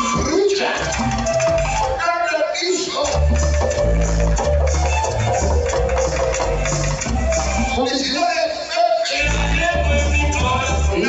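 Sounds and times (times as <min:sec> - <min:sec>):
heavy bass beat: 0:00.0 - 0:02.0, 0:03.0 - 0:07.8, 0:09.2 - 0:11.0
loud cumbia music: 0:00.0 - 0:11.0.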